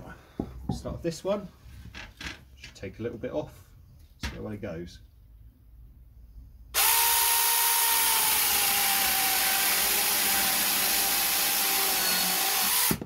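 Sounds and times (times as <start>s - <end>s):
mini chainsaw cutting wood: 6.8s - 13.0s.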